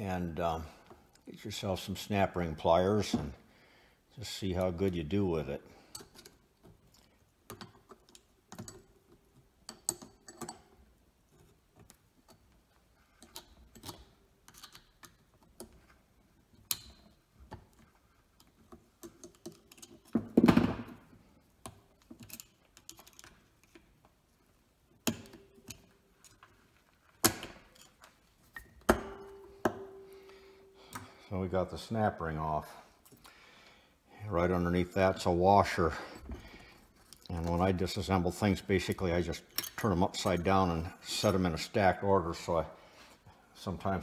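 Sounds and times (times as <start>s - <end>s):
small metallic clicks and taps: 5.9s - 16.0s.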